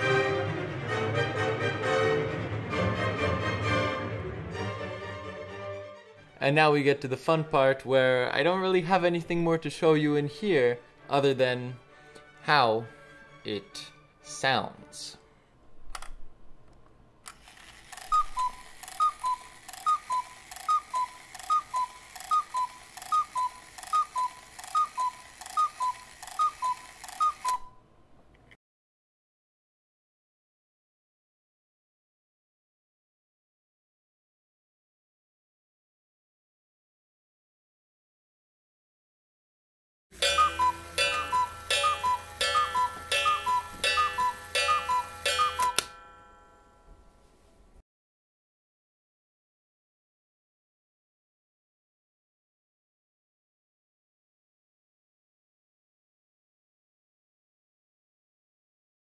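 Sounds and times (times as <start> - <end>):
clock mechanism click: 17.2 - 27.7, 40.2 - 46.1
cuckoo clock calls: 17.4 - 27.8, 40.2 - 46.3
clock mechanism taps: 40.2 - 46.0.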